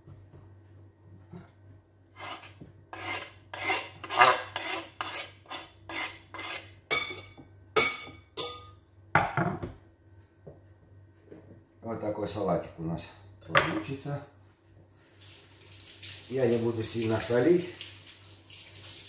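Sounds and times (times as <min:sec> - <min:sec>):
knife scraping wooden board: 0:02.1 - 0:06.8.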